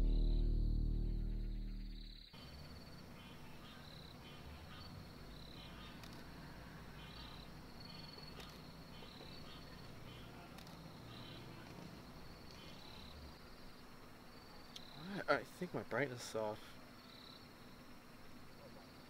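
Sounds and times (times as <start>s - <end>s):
low steady rumble: 0.0s - 3.1s
night insects chirping: 0.0s - 19.0s.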